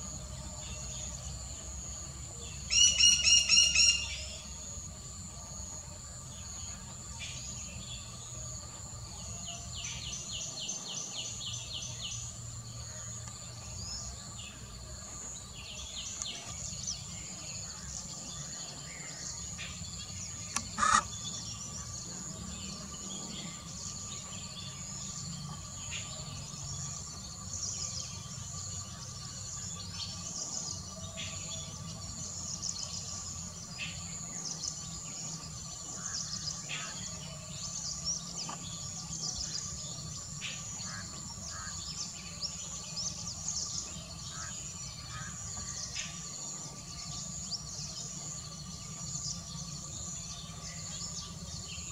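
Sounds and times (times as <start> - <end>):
high insect buzz: 0.0 - 51.9
bird chirps: 2.4 - 4.5, 15.1 - 51.9.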